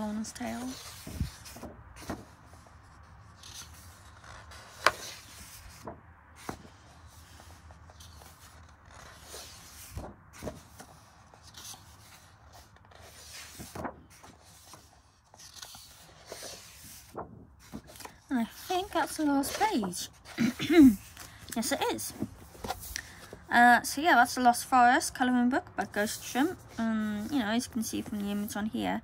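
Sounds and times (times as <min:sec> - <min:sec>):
book pages turning: 0:00.1 - 0:23.5.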